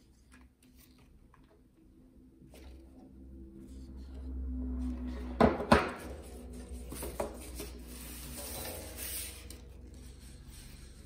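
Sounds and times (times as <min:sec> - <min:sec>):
cardstock rustling and rubbing: 0:06.2 - 0:11.0.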